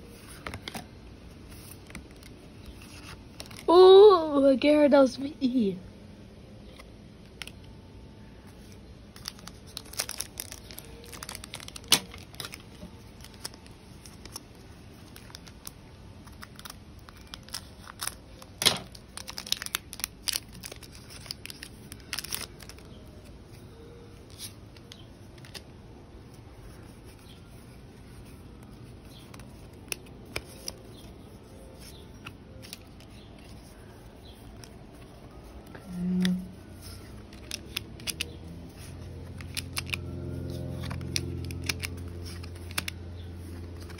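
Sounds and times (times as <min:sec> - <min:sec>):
foil wrapper crinkling and tearing: 0:08.8 - 0:23.3, 0:28.6 - 0:43.9
cards sliding against each other: 0:31.7 - 0:43.9.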